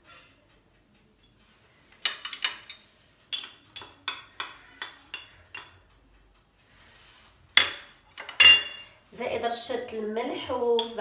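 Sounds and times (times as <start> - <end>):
kitchen utensils clinking: 2.0 - 5.8, 7.6 - 9.0, 10.7 - 11.0.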